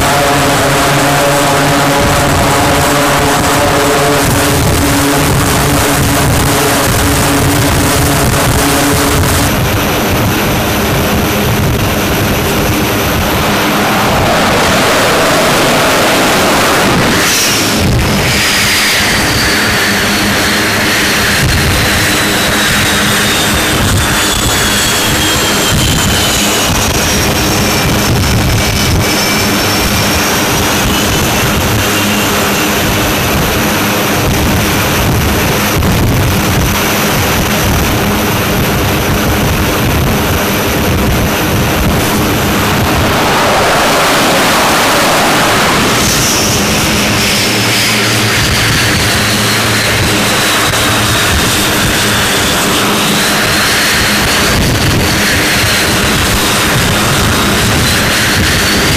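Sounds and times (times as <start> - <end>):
jet engines running: 0.0 - 58.9.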